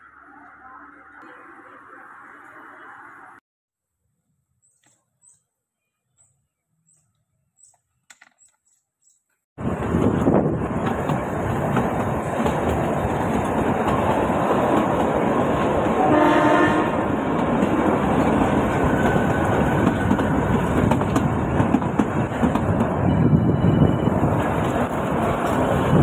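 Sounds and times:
train rumbling and rattling: 0:09.6 - 0:26.0
train horn blast: 0:16.0 - 0:17.2.

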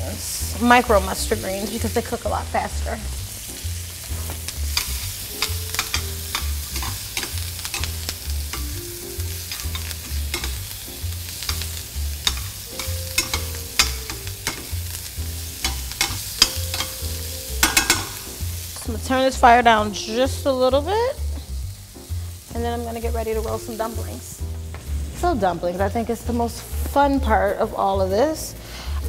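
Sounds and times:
food sizzling in a skillet: 0:00.0 - 0:29.0
metal tongs clicking and scraping: 0:04.7 - 0:15.0, 0:15.6 - 0:18.3.

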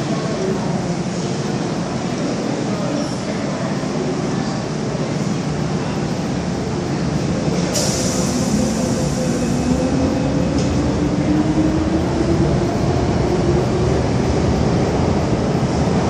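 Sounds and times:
train rumbling: 0:06.0 - 0:16.0.

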